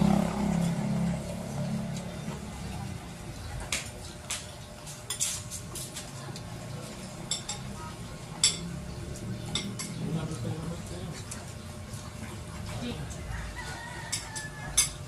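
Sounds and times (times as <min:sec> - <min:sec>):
cutlery clinking against plates: 0:03.8 - 0:06.4, 0:07.0 - 0:10.6, 0:13.6 - 0:15.0.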